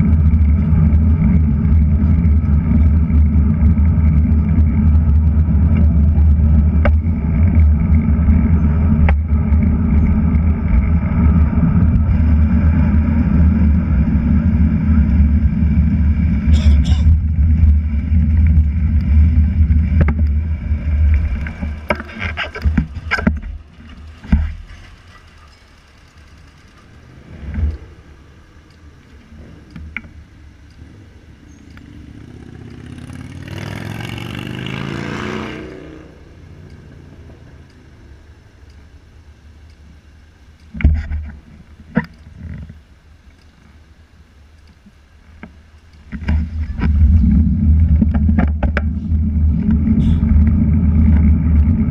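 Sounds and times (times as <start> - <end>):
low rumble: 0.0 - 32.8, 45.6 - 51.9
city street traffic: 0.0 - 47.4
vehicle accelerating past: 26.9 - 28.4, 31.8 - 38.2.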